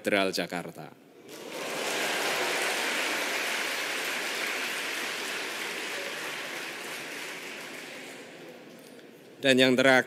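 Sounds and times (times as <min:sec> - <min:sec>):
congregation applauding: 0:01.2 - 0:08.7.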